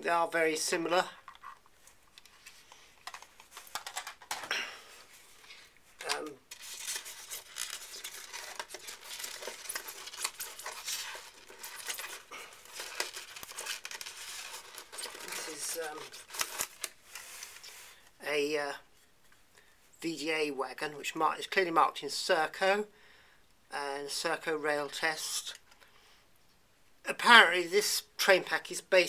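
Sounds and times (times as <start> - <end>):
rustling foam packing: 1.2 - 18.0.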